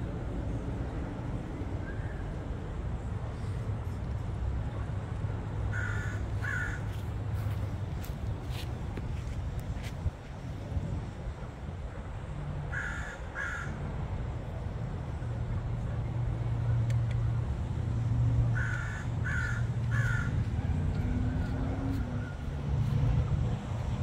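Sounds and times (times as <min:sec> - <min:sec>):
crow cawing: 0:05.7 - 0:07.0, 0:12.7 - 0:13.8, 0:18.6 - 0:20.4.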